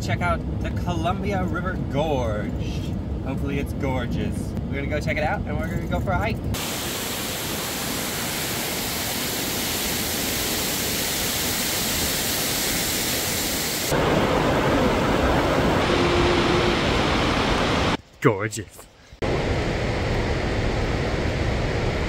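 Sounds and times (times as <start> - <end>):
waterfall rushing: 6.6 - 18.0.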